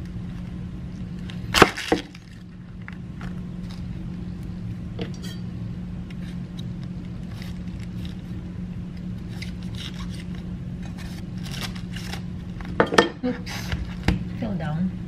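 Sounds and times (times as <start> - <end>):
steady low hum: 0.0 - 15.0
knife crunching through cabbage: 9.1 - 12.7.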